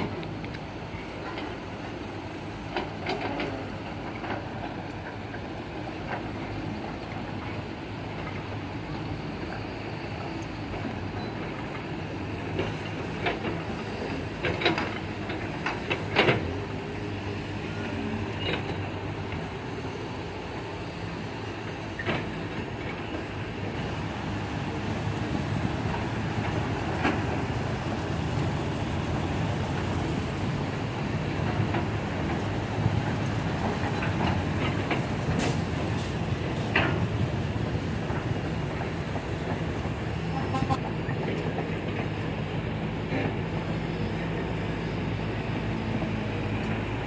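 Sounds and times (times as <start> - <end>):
diesel engines running: 0.0 - 47.0.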